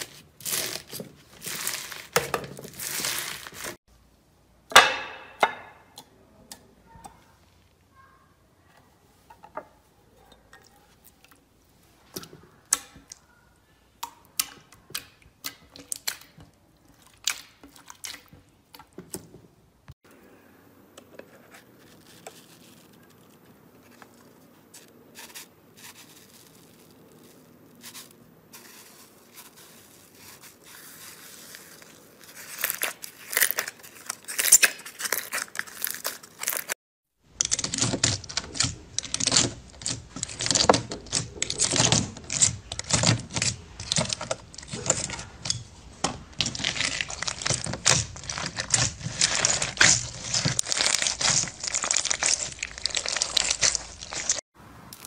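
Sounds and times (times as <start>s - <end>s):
slime crackling: 0.0s - 3.8s, 25.1s - 55.0s
beaded slime crunching: 0.0s - 3.9s, 21.8s - 55.0s.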